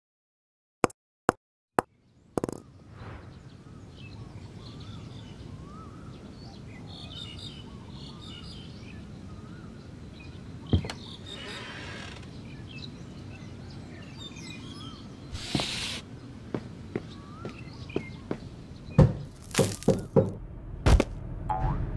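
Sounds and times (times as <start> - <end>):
small birds chirping: 1.8 - 20.2
wavering bird calls: 3.4 - 18.9.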